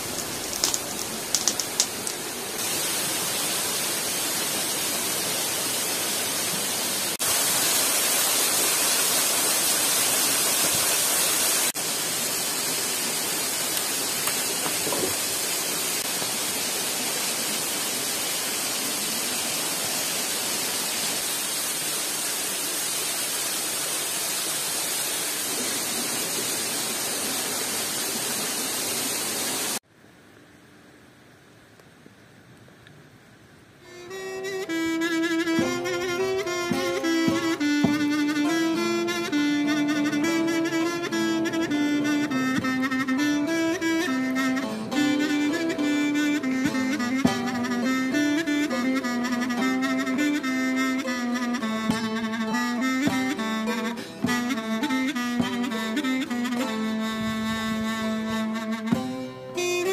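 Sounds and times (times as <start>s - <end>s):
sharp ticks: 0.0s - 2.2s
waterfall rushing: 0.0s - 29.8s, 33.9s - 58.7s.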